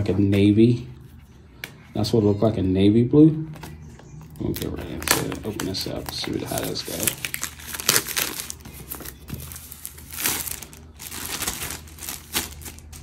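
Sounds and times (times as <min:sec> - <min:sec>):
plastic wrapper crinkling: 0:04.4 - 0:13.0.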